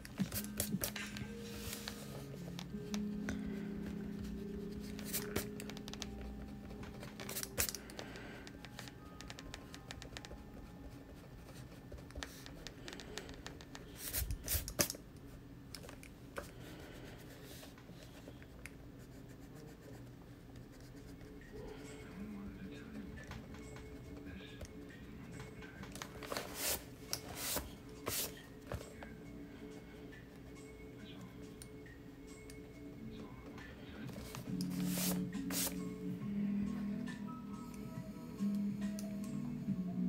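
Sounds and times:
eraser rubbing on paper: 26.3s - 28.4s, 34.7s - 35.8s.

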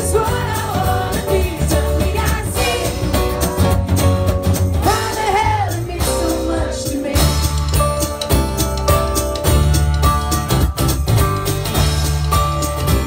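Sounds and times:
woman singing: 0.0s - 3.1s, 4.8s - 7.5s
drums with cymbals: 0.0s - 13.0s
strummed acoustic guitar: 0.0s - 13.0s
ukulele: 0.0s - 13.0s.

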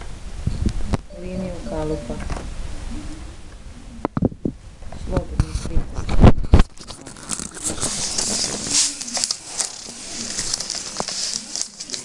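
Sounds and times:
newspaper tubes rustling: 6.6s - 12.0s.

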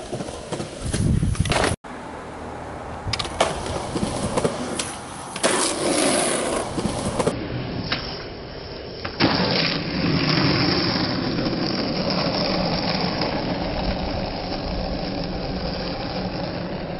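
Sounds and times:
skateboard wheels rolling on asphalt: 0.0s - 16.9s
skateboard landing clack: 3.1s - 8.1s.

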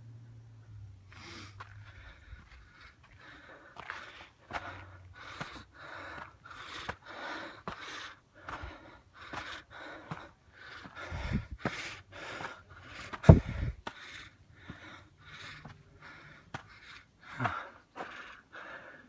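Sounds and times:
heavy quick breathing: 1.1s - 19.0s
footsteps on wooden steps: 1.6s - 14.0s, 17.4s - 18.3s.

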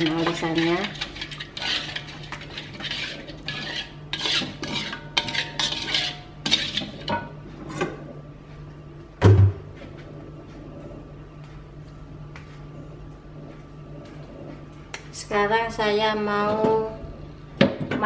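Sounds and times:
metal spatula scraping wok: 0.0s - 7.2s.

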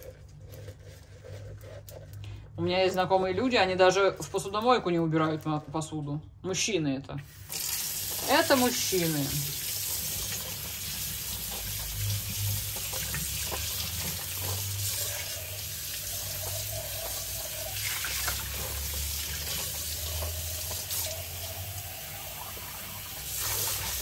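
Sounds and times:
tap water running into sink: 7.2s - 24.0s
glass vase being washed: 7.3s - 24.0s.

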